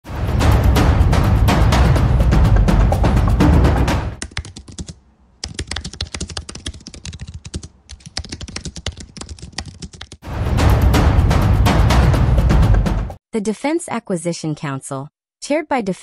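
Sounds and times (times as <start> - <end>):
drum-heavy intro music: 0.0 - 4.2, 10.2 - 13.2
rapid keyboard typing: 4.2 - 10.2.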